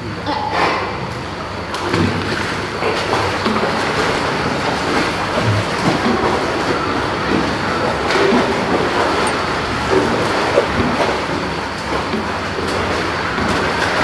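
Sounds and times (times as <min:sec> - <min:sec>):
pool water splashing: 0:00.0 - 0:14.0.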